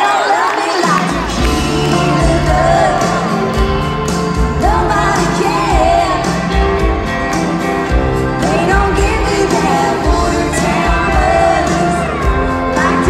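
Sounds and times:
woman singing lead: 0.0 - 7.3, 7.9 - 13.0
live band playing: 0.0 - 13.0
steady drum beat: 0.9 - 13.0.

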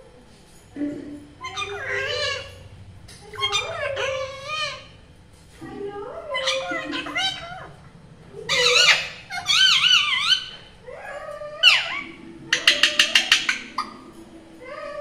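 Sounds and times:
parakeet squawks: 1.4 - 2.6, 3.3 - 5.0, 6.3 - 7.8, 8.4 - 14.1
parakeet calling and warbling: 1.4 - 5.1, 6.1 - 15.0.

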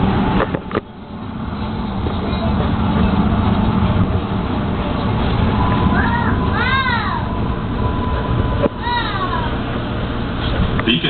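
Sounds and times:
light-rail train rumble: 0.0 - 11.0.

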